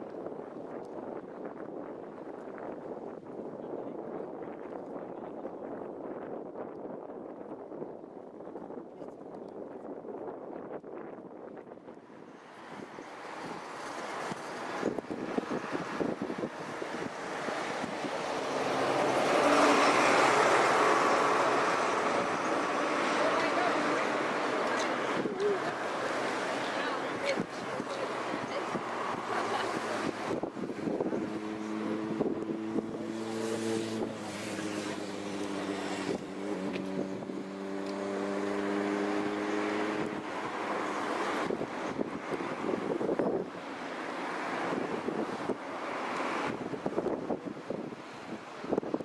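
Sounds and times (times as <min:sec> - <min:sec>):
wind buffeting microphone: 0:00.0 - 0:49.0
passing road traffic: 0:10.9 - 0:49.0.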